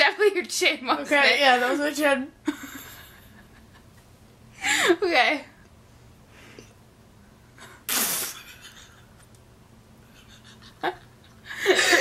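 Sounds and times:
woman's stifled laugh: 10.1s - 12.0s.

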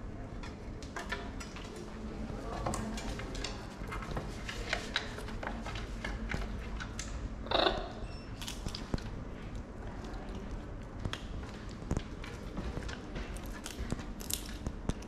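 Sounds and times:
beaks cracking shells: 8.4s - 9.0s, 13.4s - 15.0s.

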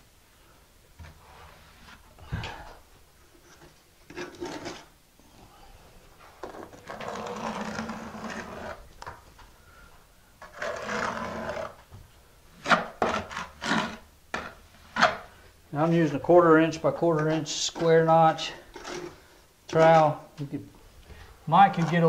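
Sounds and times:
trowel scraping mortar: 6.5s - 8.8s, 10.4s - 11.8s, 12.6s - 15.3s, 17.2s - 20.0s.

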